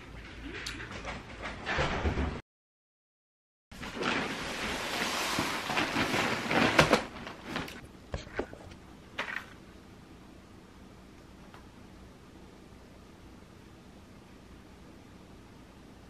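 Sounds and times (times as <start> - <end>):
packaging rustling: 3.8 - 7.8.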